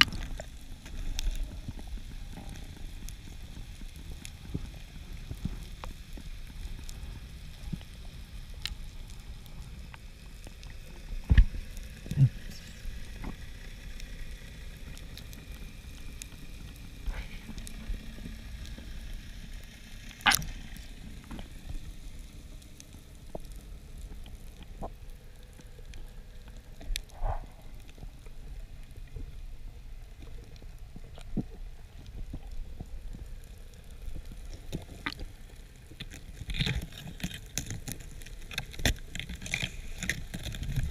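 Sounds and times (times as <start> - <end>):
faint underwater crackle: 0.0 - 40.9
low underwater rumble: 0.0 - 40.9
sharp underwater clicks and knocks: 11.2 - 12.3, 35.9 - 40.9.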